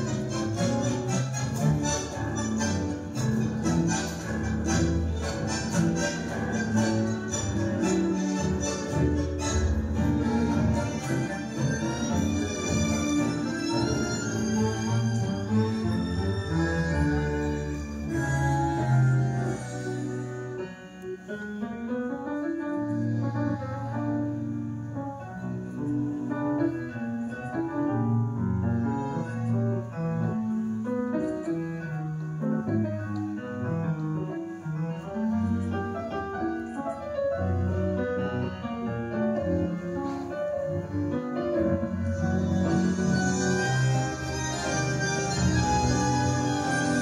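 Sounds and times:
double bass line: 0.0 - 20.6
tango music with piano: 0.0 - 47.0.

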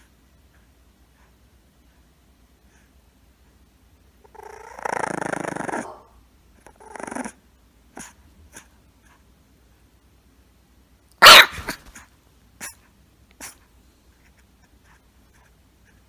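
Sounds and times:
puppy growling: 4.2 - 7.4.

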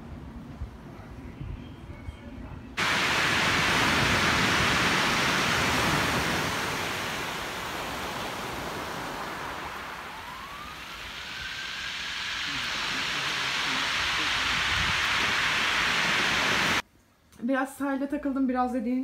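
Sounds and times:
waves breaking on shingle: 2.8 - 10.6.

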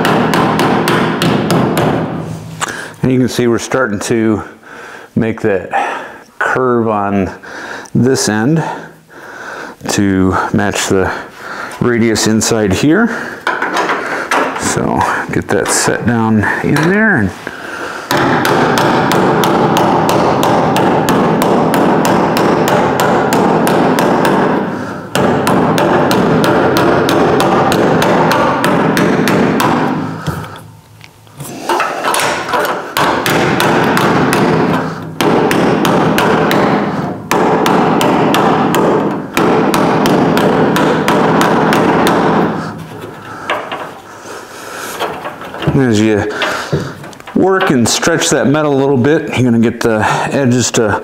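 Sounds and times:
hammer tapping on sheet steel: 0.0 - 2.2, 18.1 - 30.6, 31.7 - 44.1, 45.0 - 48.3.

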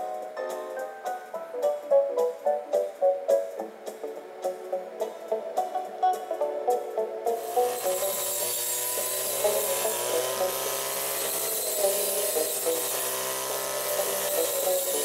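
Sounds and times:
blade cutting dry grass: 7.3 - 15.0
brush cutter running at high speed: 7.4 - 15.0.

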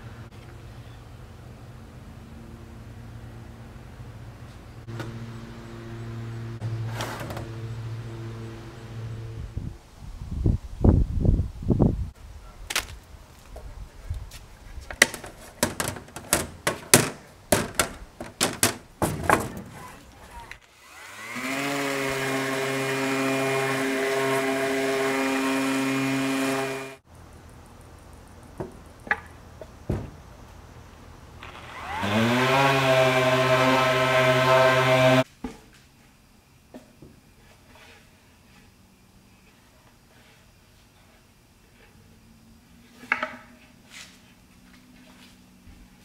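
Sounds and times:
orbital sander whining on wood: 20.8 - 27.0, 31.4 - 35.2.

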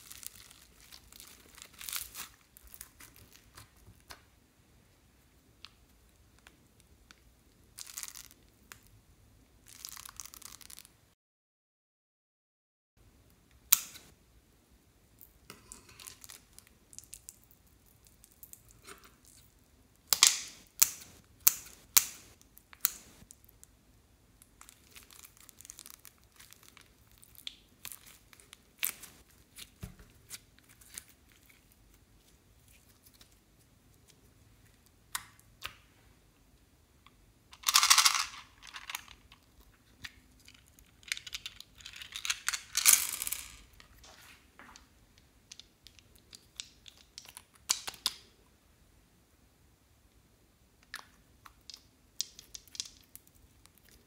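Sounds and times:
slime crackling and tearing: 0.0 - 3.8, 24.6 - 31.8.

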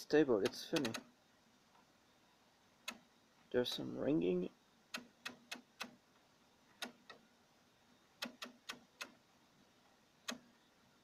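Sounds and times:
relay clicking: 0.4 - 1.1.

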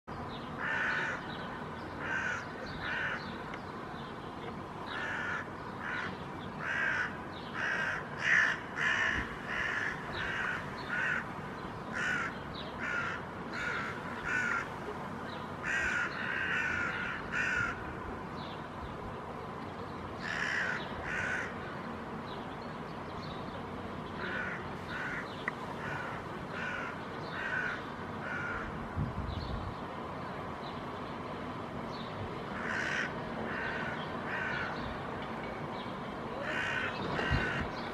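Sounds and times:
crows cawing: 0.6 - 1.2, 2.0 - 3.3, 4.9 - 11.3, 11.9 - 14.8, 15.6 - 17.8, 20.2 - 21.6, 24.2 - 28.8, 32.6 - 34.8, 36.4 - 37.8.

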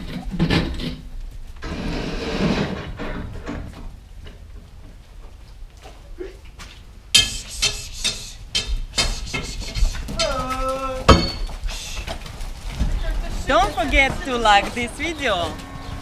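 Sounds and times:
metal clinking and knocking: 11.1 - 11.6
cow mooing: 15.1 - 16.0.

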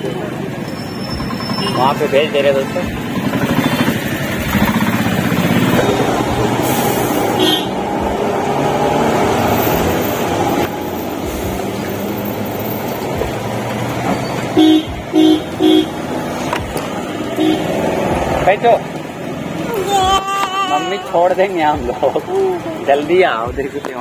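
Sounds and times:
road traffic engines: 0.0 - 24.0
car horn honks: 7.4 - 7.8, 14.5 - 16.0, 17.4 - 17.7.

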